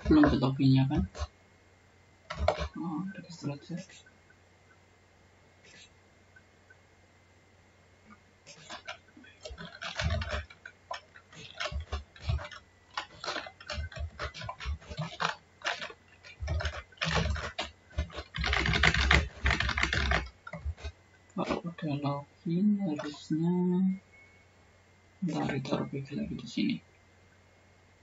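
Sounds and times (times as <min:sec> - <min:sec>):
computer keyboard typing: 0:08.5 - 0:20.9.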